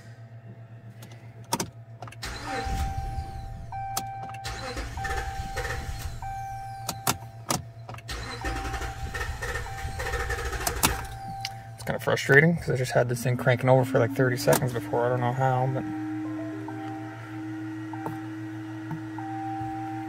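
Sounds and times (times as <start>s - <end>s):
engine starter cranking: 2.0s - 7.2s, 7.9s - 11.6s
warning chime beeping: 2.2s - 20.0s.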